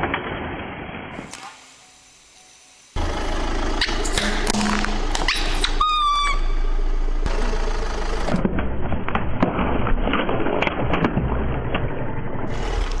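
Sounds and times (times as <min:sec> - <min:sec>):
car engine running: 0:03.0 - 0:09.7, 0:11.3 - 0:13.0.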